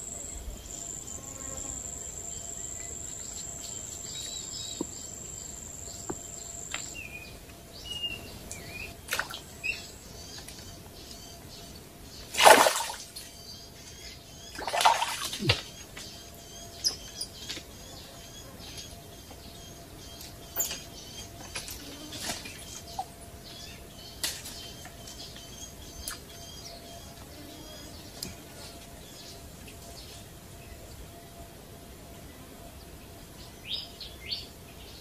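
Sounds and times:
small birds chirping: 0.2s - 31.0s
splashes in shallow water: 12.3s - 13.2s, 14.6s - 15.7s.

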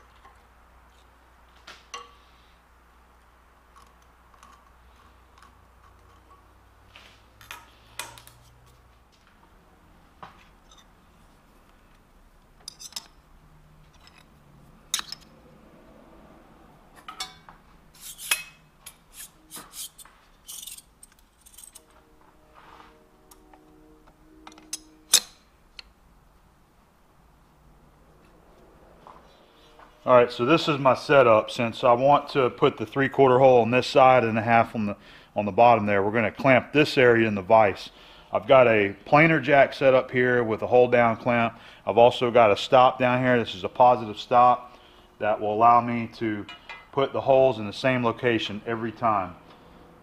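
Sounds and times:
tools clanking against metal vise: 12.6s - 13.2s, 13.8s - 15.3s, 17.0s - 21.9s, 24.5s - 25.9s, 46.5s - 47.0s.

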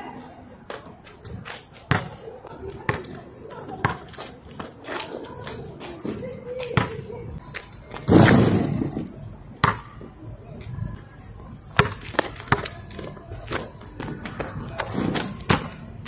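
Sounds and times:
ball bouncing on asphalt: 1.8s - 8.7s, 9.6s - 10.2s, 11.7s - 16.0s.

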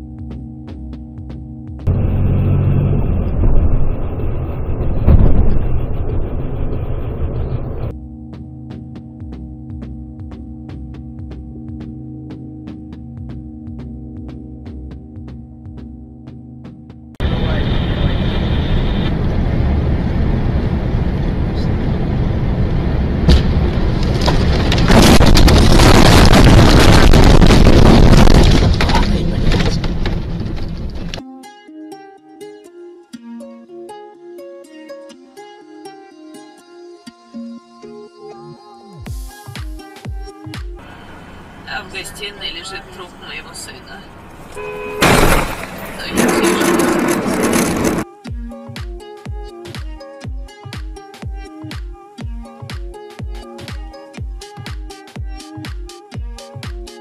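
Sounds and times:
background music with steady tones: 0.0s - 1.9s, 7.9s - 17.2s, 31.2s - 41.0s, 48.0s - 57.0s
car road and engine noise: 1.8s - 8.0s, 17.2s - 31.2s, 40.8s - 48.1s
truck crashing into car: 4.8s - 6.0s, 23.2s - 31.2s, 45.0s - 48.0s
thump: 5.0s - 5.6s, 23.3s - 23.6s, 45.0s - 45.7s.

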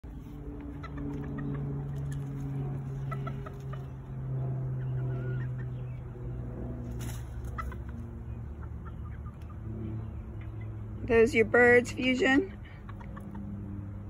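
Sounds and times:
steady low hum: 0.0s - 14.0s
chickens clucking: 0.1s - 11.0s, 12.2s - 14.0s.

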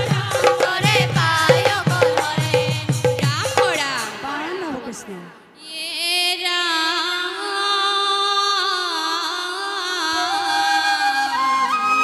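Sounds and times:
flute: 10.1s - 12.0s.

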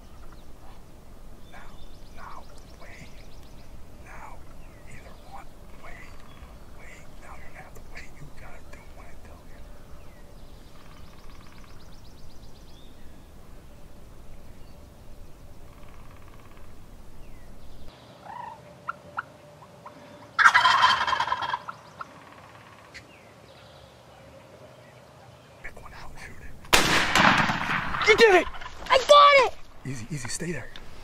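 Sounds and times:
turkey gobbling: 18.2s - 23.1s, 27.2s - 29.4s.

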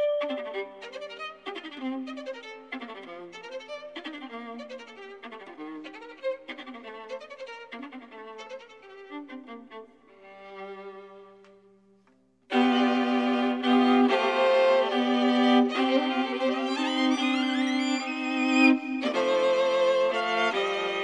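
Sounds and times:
violin playing quick melody: 0.0s - 3.8s, 12.5s - 21.0s.

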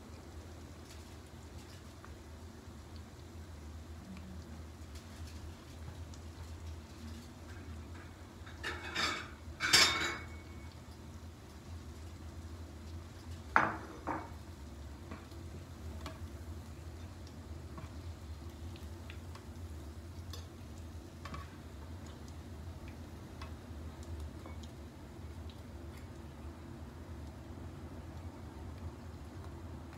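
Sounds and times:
oil sizzling: 0.0s - 29.9s.

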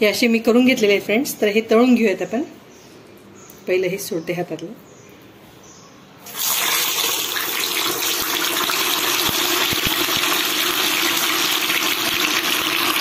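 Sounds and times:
oil sizzling and bubbling: 6.2s - 13.0s.

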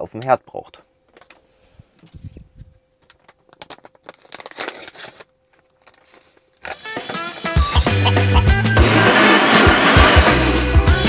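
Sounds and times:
packets crinkling and rustling: 1.1s - 2.1s, 2.9s - 7.3s.

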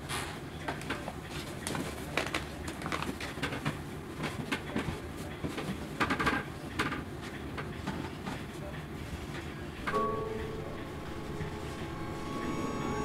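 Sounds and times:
low room hum: 9.9s - 13.0s.

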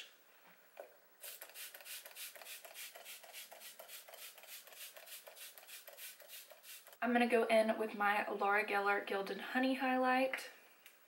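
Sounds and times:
spray bottle spritzing: 1.2s - 7.0s.

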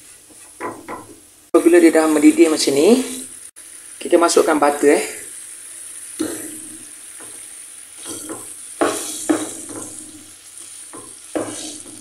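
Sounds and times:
sauce sizzling in a pan: 0.0s - 12.0s
wooden spatula scraping a pan: 8.0s - 12.0s.

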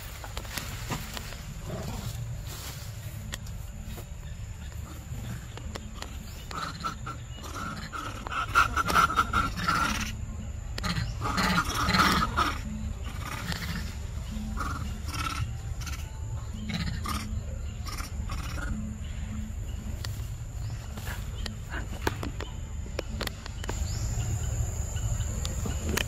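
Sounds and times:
macaque calls: 6.0s - 19.0s.

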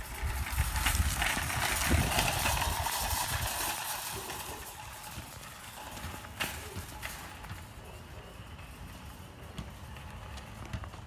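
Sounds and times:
wind rumble on microphone: 0.0s - 5.2s
shopping cart rattling on asphalt: 0.0s - 11.0s.

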